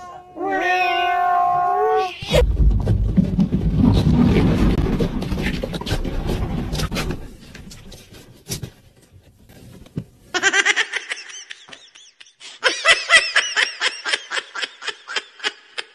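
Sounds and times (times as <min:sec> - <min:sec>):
low rumbling noise: 0:02.3 - 0:07.5
person laughing high-pitched: 0:10.4 - 0:15.9.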